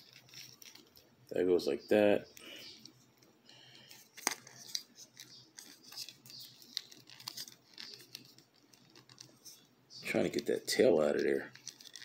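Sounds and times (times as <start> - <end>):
faint plastic rubbing: 2.6 - 12.0.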